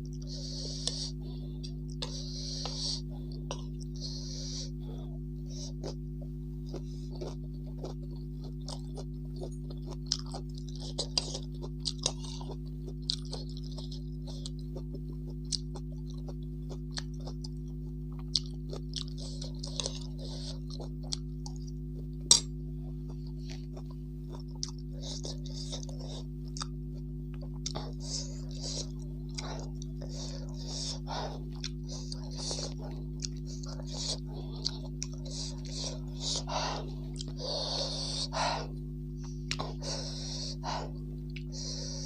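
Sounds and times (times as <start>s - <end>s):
low electrical hum: 0.0s - 42.0s
person chewing: 0.0s - 42.0s.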